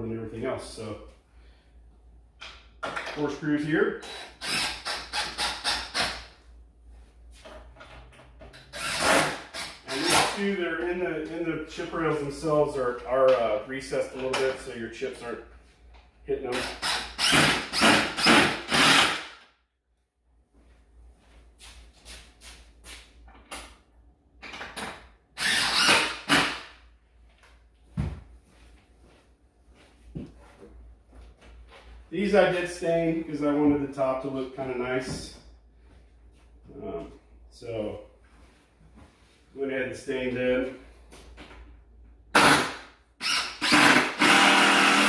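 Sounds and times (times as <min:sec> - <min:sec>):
power drill driving screws into wood: 0:08.7 - 0:10.3, 0:16.6 - 0:19.5, 0:25.4 - 0:26.7, 0:42.4 - 0:45.0.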